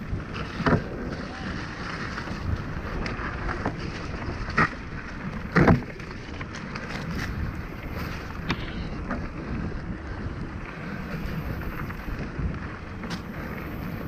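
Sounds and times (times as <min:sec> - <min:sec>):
bike clattering over bumps: 0:00.0 - 0:10.6
bike tyres on dirt: 0:00.0 - 0:14.0
wind rush on microphone: 0:00.0 - 0:14.0.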